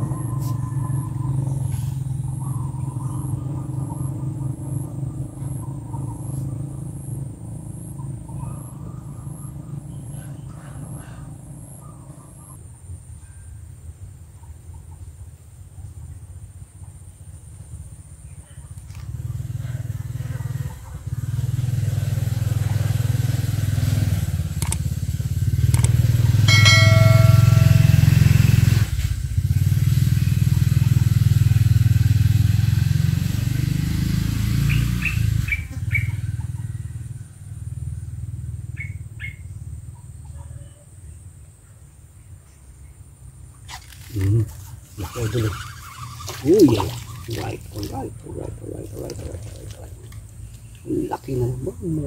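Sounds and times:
engine running: 0.0 - 12.5, 17.2 - 40.0
brief high tone: 26.5 - 28.8.

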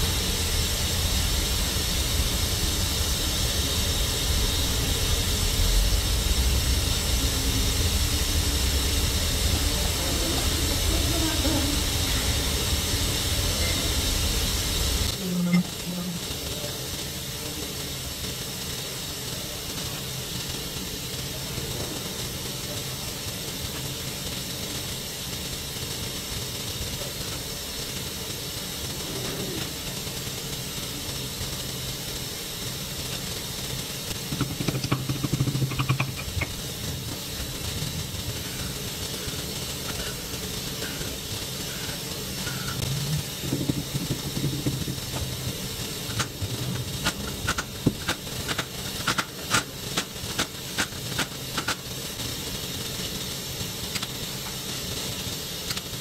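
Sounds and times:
machine shop hiss and hum: 0.0 - 56.0
tools knocking and clattering: 34.3 - 36.6, 43.4 - 45.3.

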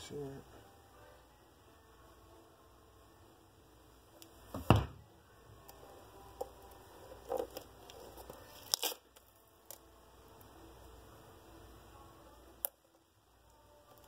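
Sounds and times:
cork filler crunching: 6.4 - 9.8.

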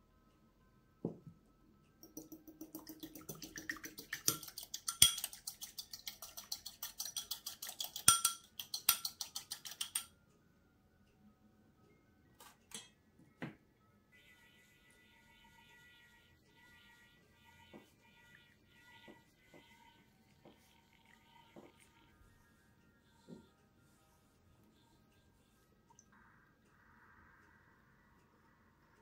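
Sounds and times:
whisk beating in a bowl: 2.1 - 10.1.

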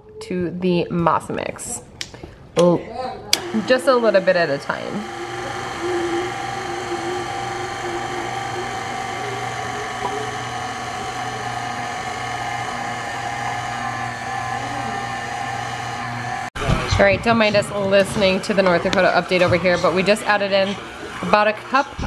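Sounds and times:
stand mixer motor whirring: 3.4 - 16.6, 17.4 - 22.0.

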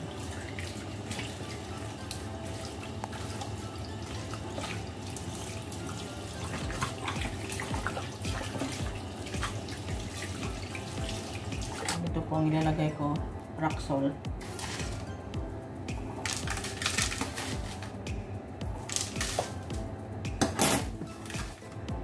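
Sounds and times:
tap water running into basin: 0.0 - 12.1
water splashing: 0.0 - 12.1.

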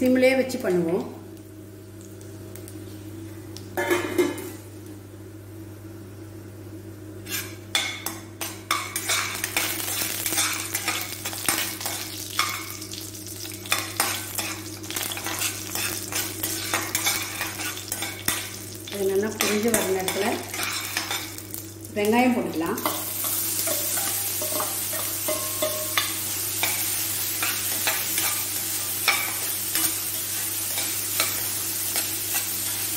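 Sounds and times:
spices sizzling in oil: 7.2 - 32.9.

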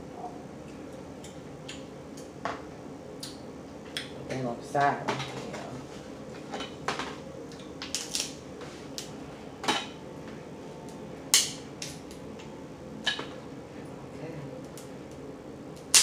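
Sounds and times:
crab shell cracking: 7.6 - 8.4.

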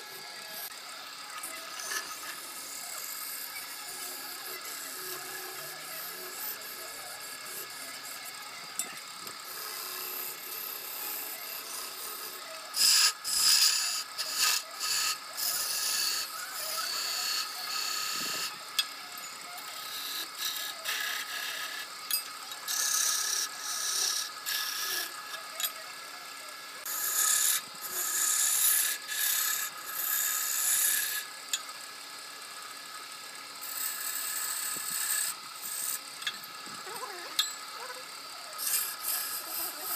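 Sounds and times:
wood lathe humming: 0.0 - 33.0, 33.6 - 39.9
turning tool scraping wood: 9.3 - 18.6, 19.7 - 21.9, 26.8 - 31.3, 33.6 - 36.0, 38.5 - 39.9.

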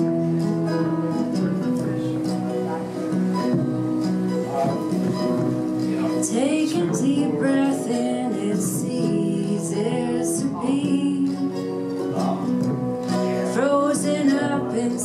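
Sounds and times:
strummed acoustic guitar: 0.0 - 15.0
upright bass: 0.0 - 15.0
woman singing: 6.1 - 12.1, 13.1 - 15.0.

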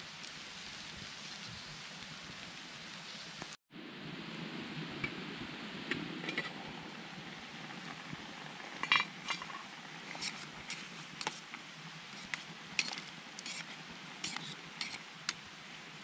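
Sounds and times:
utensil scraping metal frying pan: 8.6 - 11.4, 12.1 - 15.1.

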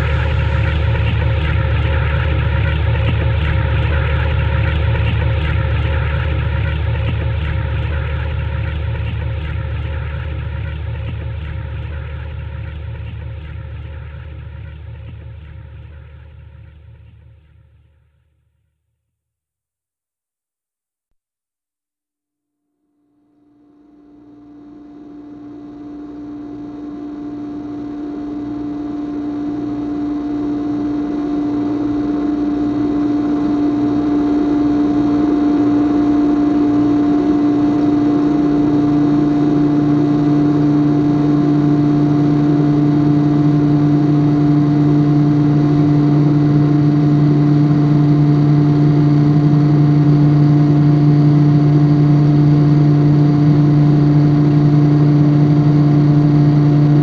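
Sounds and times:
machine hum with hiss: 0.0 - 16.8
deep drone: 0.0 - 18.3, 23.4 - 57.0.

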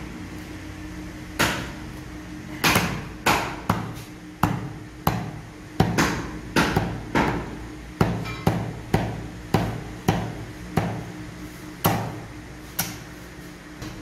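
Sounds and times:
faint steady hum: 0.0 - 14.0
cleaver chopping meat on wood: 1.4 - 1.7, 2.6 - 11.0, 11.8 - 12.2.

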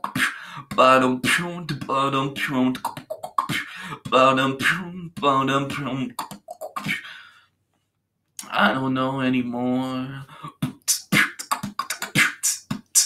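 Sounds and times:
beatboxing: 0.0 - 7.2, 10.3 - 13.0.

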